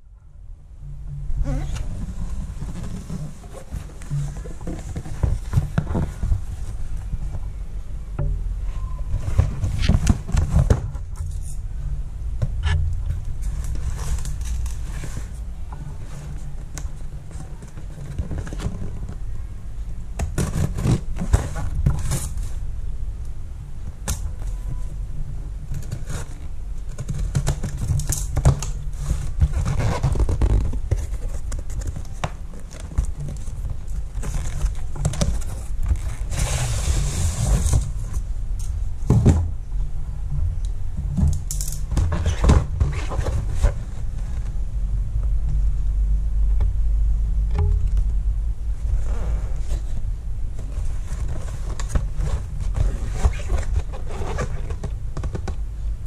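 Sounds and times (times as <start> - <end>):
cardboard rustling and knocking: 1.1 - 7.2
low rumble: 43.2 - 53.0.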